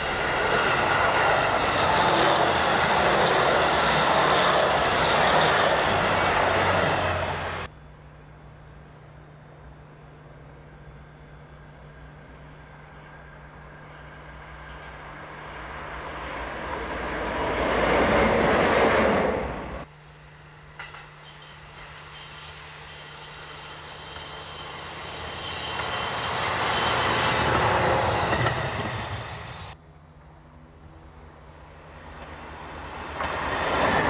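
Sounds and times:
diesel locomotive passing: 0.0 - 34.0
diesel railcar passing: 0.0 - 34.0.

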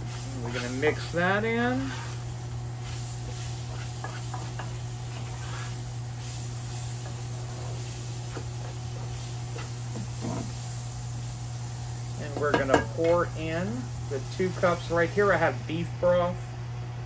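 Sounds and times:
spatula scraping a skillet: 0.0 - 10.7
steady low hum: 0.0 - 17.0.

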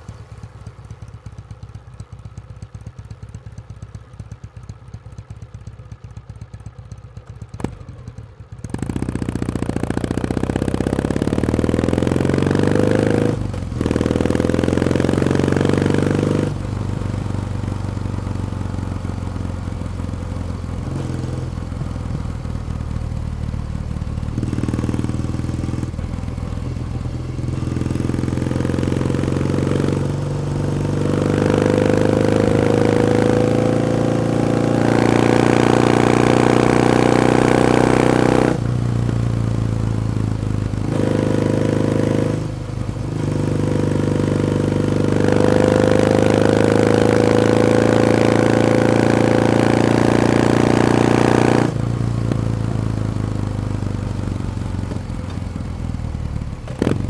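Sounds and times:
motorcycle engine idling: 0.0 - 11.6, 16.6 - 31.0, 51.8 - 57.0
motorcycle accelerating through gears: 0.0 - 57.0.

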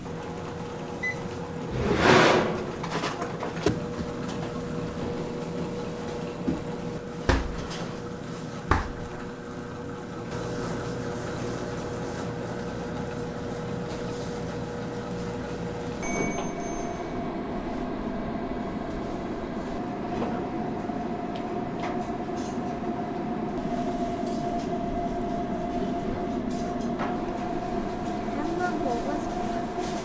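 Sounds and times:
shop ambience hum: 0.2 - 30.0
machine-like tone: 16.0 - 18.7.

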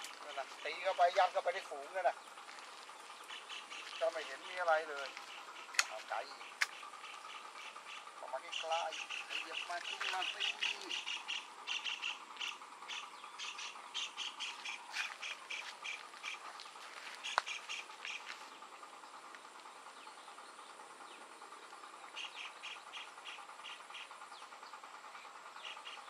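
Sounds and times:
high insect drone: 0.0 - 26.0
sharp click: 5.7 - 6.8.

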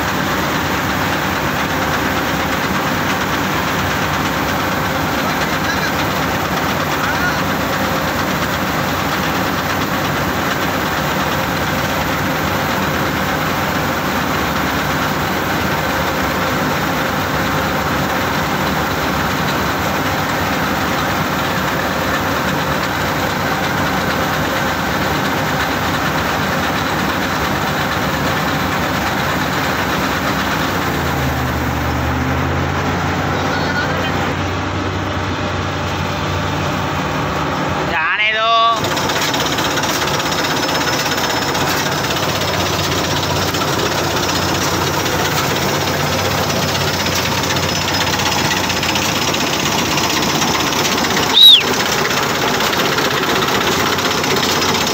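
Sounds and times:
combine harvester running: 0.0 - 54.9.

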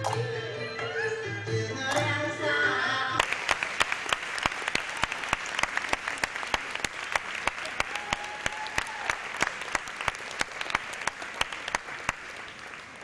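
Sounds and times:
audience applauding: 3.2 - 13.0
close hand claps: 3.2 - 13.0.

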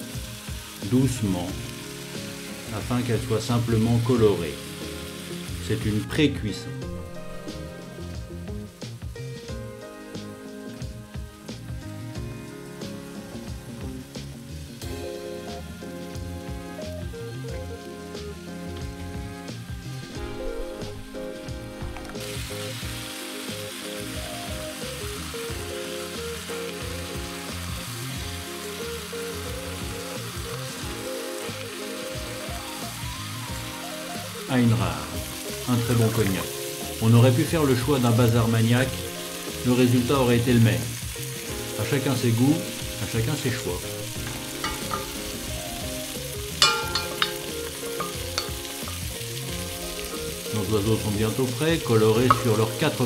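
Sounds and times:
meat sizzling in oil: 0.0 - 53.0
soft background music: 0.0 - 53.0
wooden spoon turning meat: 42.1 - 51.4, 52.0 - 53.0
wooden spoon knocking pot: 44.3 - 45.3, 46.6 - 49.0.

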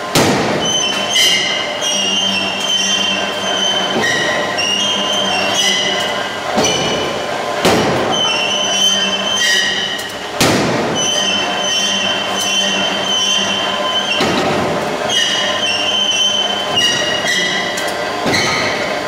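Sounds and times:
heavy metallic blows: 0.0 - 1.8, 6.6 - 12.3
high-pitched metallic squeal: 0.6 - 7.2, 8.1 - 10.2, 10.9 - 18.9.

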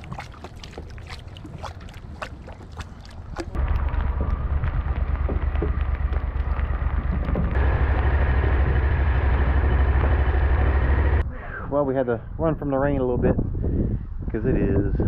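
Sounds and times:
outboard motor: 0.0 - 11.2
wind buffeting microphone: 12.2 - 15.0.

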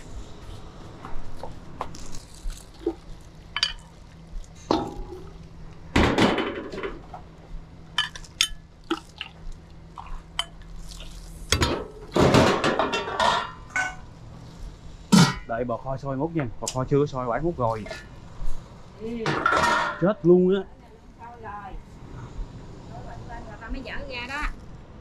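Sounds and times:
bowls and utensils clinking: 3.6 - 4.0, 8.0 - 9.2, 12.5 - 14.0, 19.3 - 20.1.

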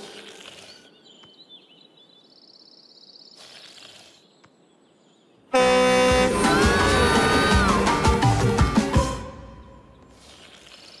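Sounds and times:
loud music: 5.9 - 9.4.

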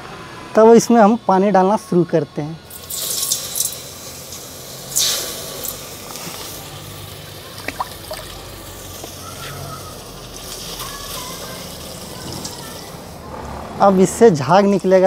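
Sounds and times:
water pouring into a pot: 2.7 - 5.8, 6.4 - 8.5
hissing splash: 2.7 - 13.2
water dripping: 7.6 - 8.4.

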